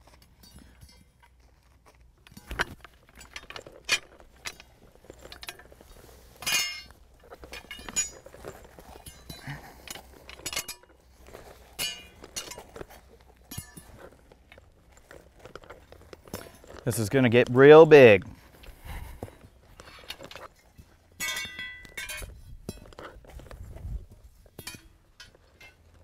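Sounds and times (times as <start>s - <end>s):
metal struts clinking together: 2.3s - 5.8s, 6.4s - 17.7s, 19.8s - 23.2s, 24.5s - 26.0s.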